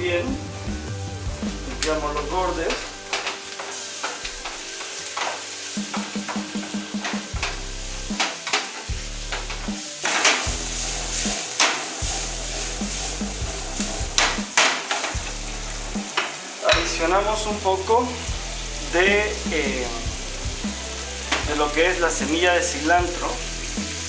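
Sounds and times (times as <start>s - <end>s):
food sizzling in a wok: 0.0s - 24.0s
wooden spatula scraping pan: 1.7s - 17.0s.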